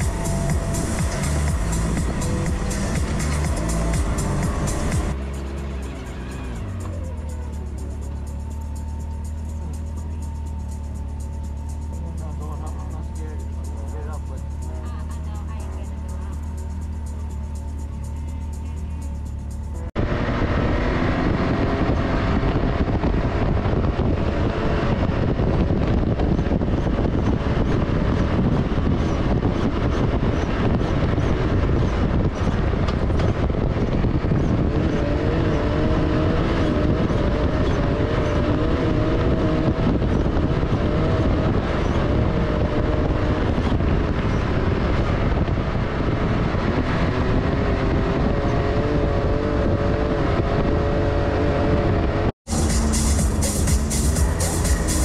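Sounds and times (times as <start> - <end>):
heavy wind noise: 0.0 - 5.2, 6.4 - 55.0
vehicle engine running: 0.0 - 55.0
ground noise: 52.5 - 55.0.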